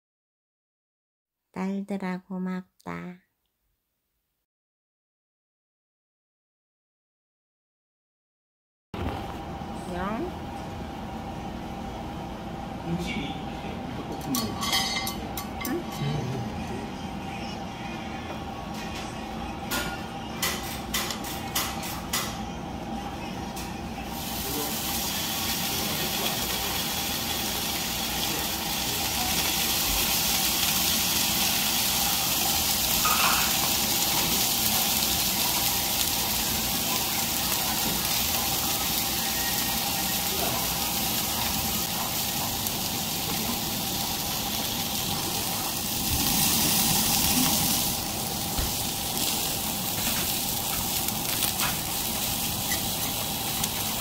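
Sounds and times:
steaks sizzling on grill pan: 24.1 - 54.0.

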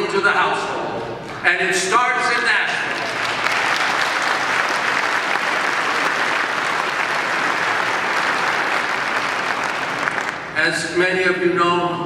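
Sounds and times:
audience applauding: 2.4 - 10.6.

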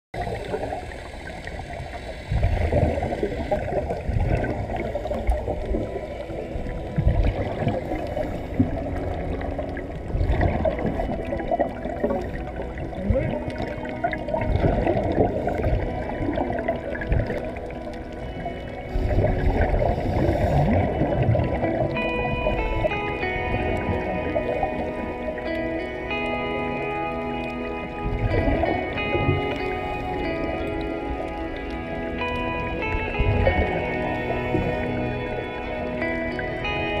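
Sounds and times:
underwater gurgling and bubbling: 0.2 - 37.0.

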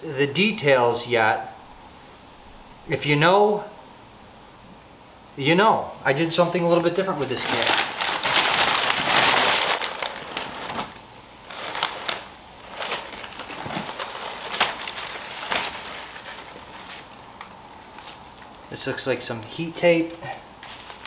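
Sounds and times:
packing paper crinkling: 6.4 - 18.7, 20.6 - 21.0.

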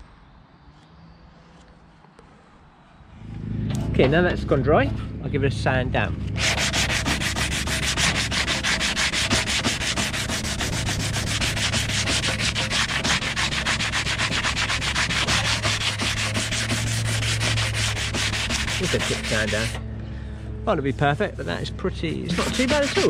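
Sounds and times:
sanding back and forth: 6.4 - 19.8, 20.7 - 23.0.

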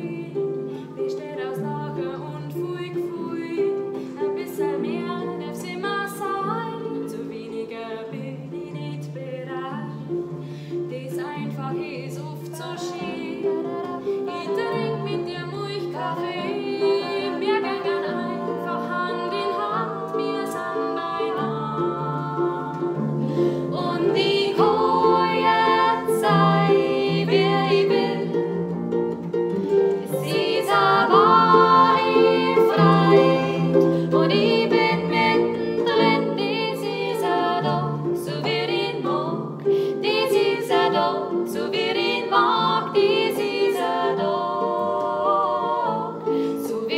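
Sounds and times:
women singing: 0.0 - 28.8, 29.5 - 46.9
plucked harp: 0.0 - 46.9.

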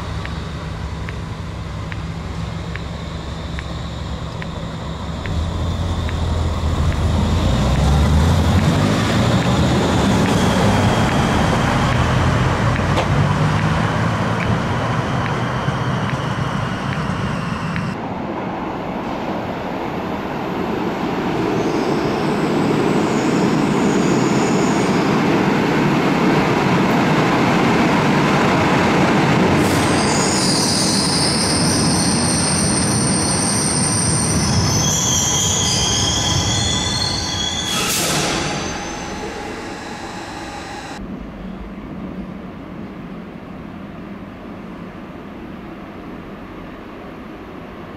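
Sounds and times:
train rumbling: 0.0 - 47.9
train wheels squealing: 2.2 - 12.8, 21.3 - 25.6, 29.3 - 41.0.

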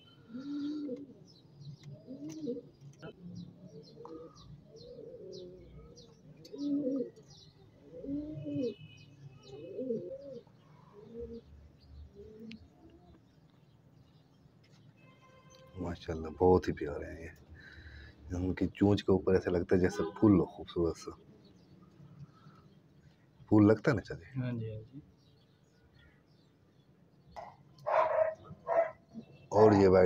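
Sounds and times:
pigeons cooing: 0.2 - 13.2, 27.3 - 30.0.

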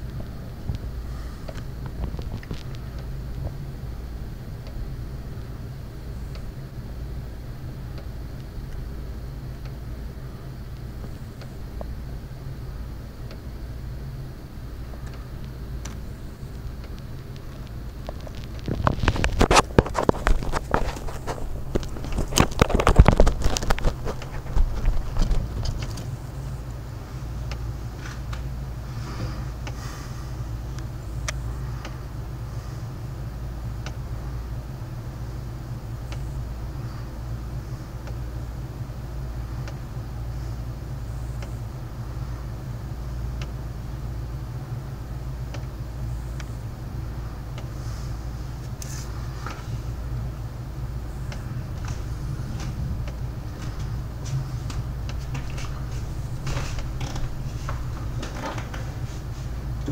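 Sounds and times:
dense crackling and clicking: 0.0 - 59.9
low thunder rumble: 49.2 - 59.9.

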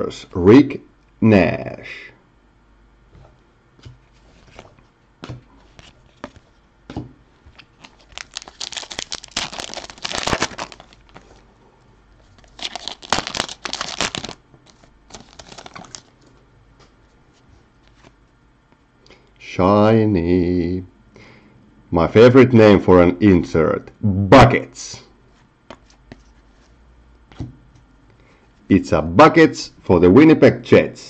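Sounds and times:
cards rustling and tapping: 3.2 - 11.4, 12.2 - 17.0
foil wrapper crackling: 7.5 - 11.5, 12.2 - 16.2.

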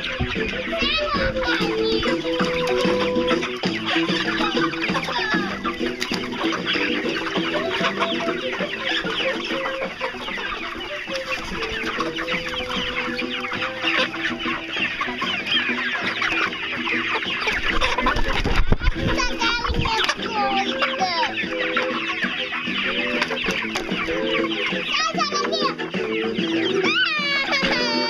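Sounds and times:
hens clucking and squawking: 0.0 - 28.0.

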